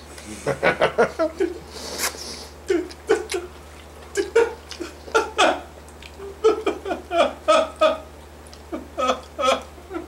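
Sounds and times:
man sobbing: 2.6s - 3.5s, 4.1s - 8.1s, 8.7s - 10.0s.

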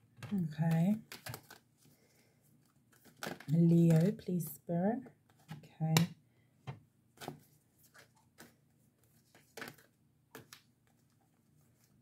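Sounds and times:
cards tapping and rustling: 0.3s - 1.9s, 2.6s - 4.2s, 6.7s - 11.9s.

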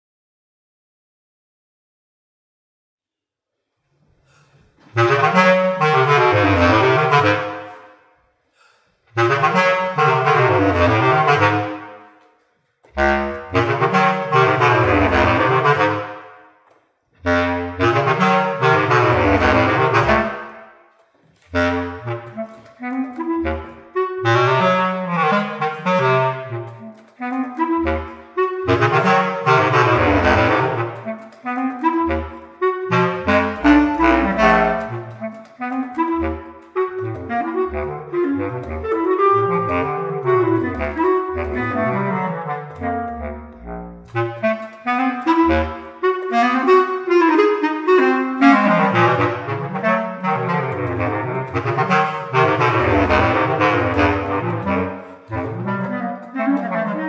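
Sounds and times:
bass clarinets playing: 4.7s - 8.1s, 9.1s - 12.2s, 12.8s - 16.6s, 17.2s - 57.0s.

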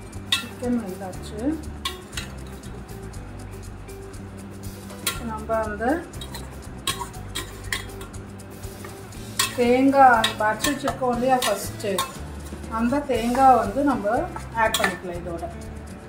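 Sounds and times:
background music: 0.0s - 16.0s
metal spoon scraping a pot: 0.2s - 0.6s, 1.8s - 2.7s, 4.8s - 5.3s, 6.1s - 15.0s
spoon clinking against pot: 0.3s - 0.6s, 1.8s - 2.4s, 6.2s - 8.2s, 9.4s - 12.3s, 14.3s - 15.0s.

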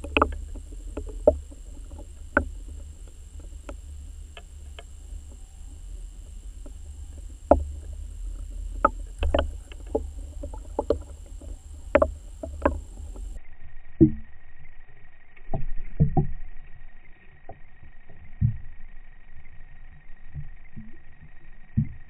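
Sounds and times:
sharp knocks and clicks: 0.0s - 5.4s, 6.0s - 13.4s
muffled underwater rumble: 0.0s - 14.4s
faint high whine: 0.0s - 22.0s.

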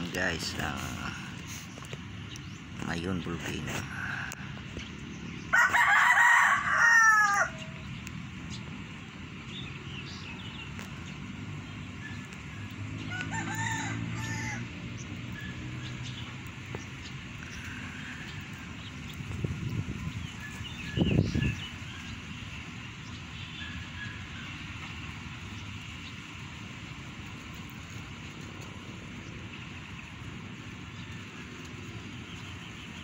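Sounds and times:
rooster crowing: 5.5s - 7.8s, 13.0s - 14.8s.

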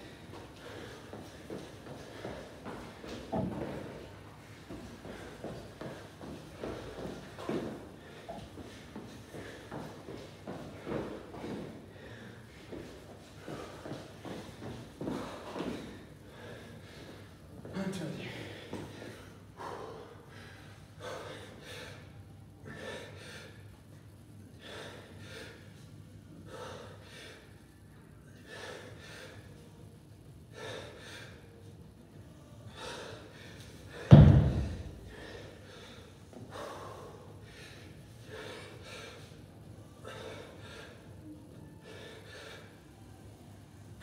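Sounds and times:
man breathing hard: 0.0s - 44.0s
heavy thud: 34.0s - 35.0s.

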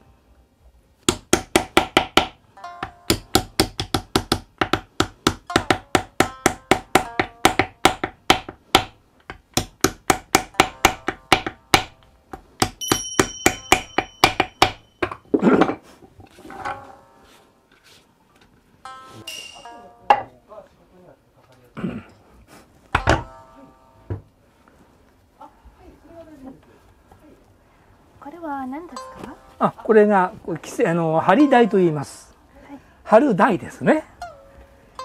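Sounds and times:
wooden mallet knocking: 1.1s - 16.8s, 22.9s - 23.4s.

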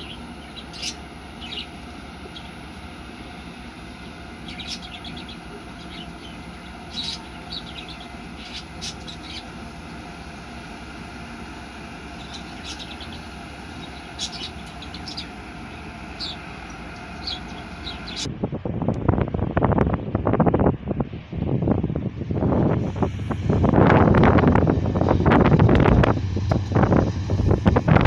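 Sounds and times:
birds chirping: 0.0s - 18.3s
distant freight train rumble: 0.0s - 28.0s.

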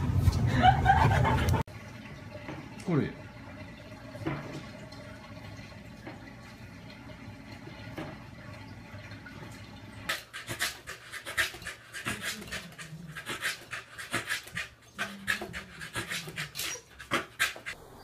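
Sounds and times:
dog panting: 10.1s - 17.8s.

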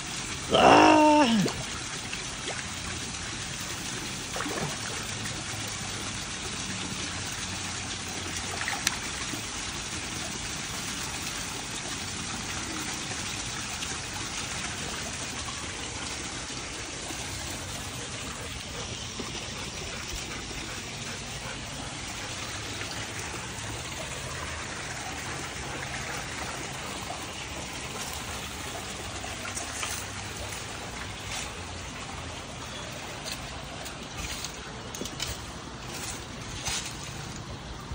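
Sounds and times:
water trickling in a pond: 0.0s - 37.9s.

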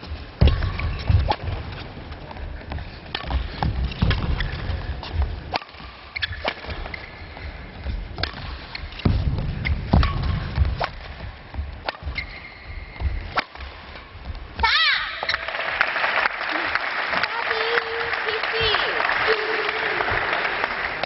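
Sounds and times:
low thuds: 6.7s - 14.8s.

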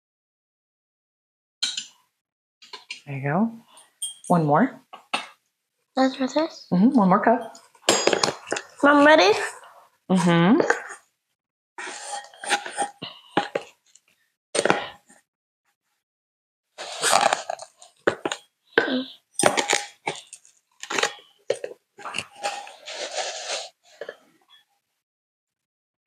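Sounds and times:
metal cup scraping through sugar: 11.8s - 13.4s, 16.8s - 18.3s, 19.4s - 24.2s.

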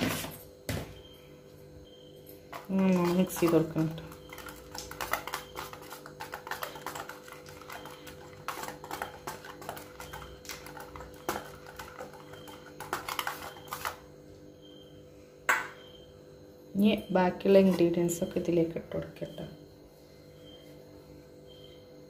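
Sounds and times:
whisk clicking against metal bowl: 2.6s - 14.0s.

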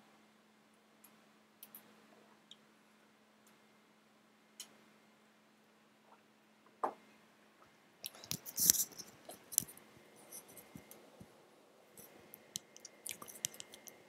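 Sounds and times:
small clicks: 1.0s - 1.9s, 12.0s - 14.0s.

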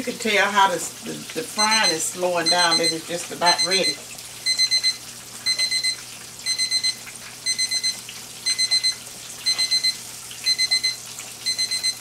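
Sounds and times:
fish sizzling in hot oil: 0.0s - 12.0s
electronic timer alarm beeping: 1.6s - 12.0s.

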